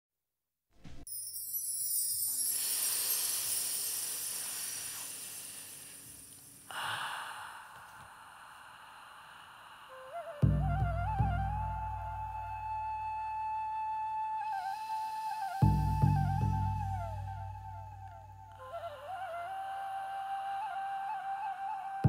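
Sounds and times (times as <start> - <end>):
airy breathy swell: 2.3 - 10.6, 14.5 - 16.6
flute melody: 9.9 - 22.0.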